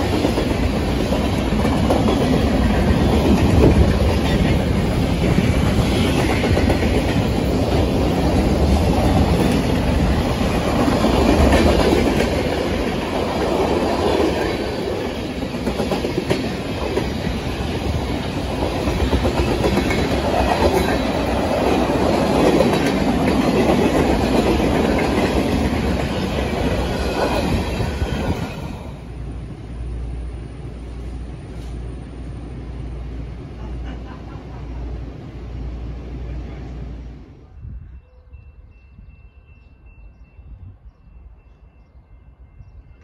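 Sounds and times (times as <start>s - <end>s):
wheels clacking over rail joints: 0.0s - 28.6s
freight train rumbling past: 0.0s - 43.0s.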